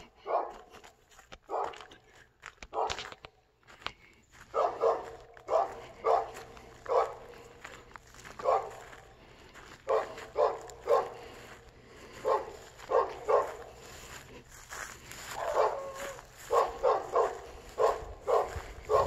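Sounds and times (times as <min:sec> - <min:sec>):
dog barking: 0:00.2 - 0:00.8, 0:01.5 - 0:01.9, 0:02.7 - 0:03.1, 0:04.5 - 0:07.4, 0:08.4 - 0:09.0, 0:09.8 - 0:11.2, 0:12.2 - 0:13.8, 0:15.3 - 0:19.0.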